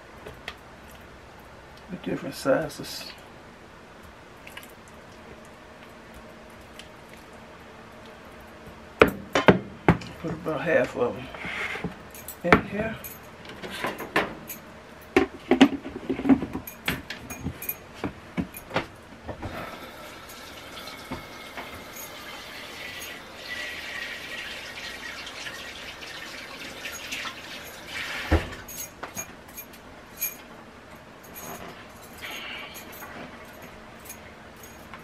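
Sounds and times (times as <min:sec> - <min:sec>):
running water: 0:19.5 - 0:28.6.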